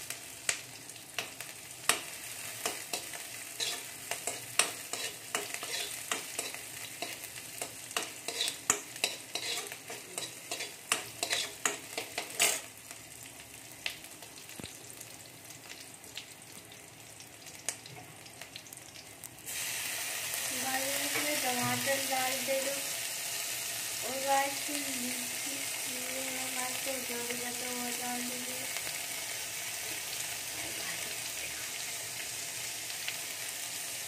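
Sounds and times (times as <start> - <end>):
vegetables sizzling in oil: 0.0 - 34.0
spoon scraping metal pan: 2.6 - 7.2, 8.0 - 12.7.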